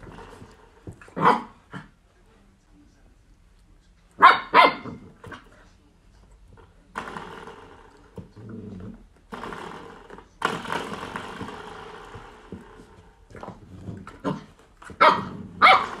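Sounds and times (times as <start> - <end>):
puppy growling: 7.0 - 9.8, 13.3 - 16.0.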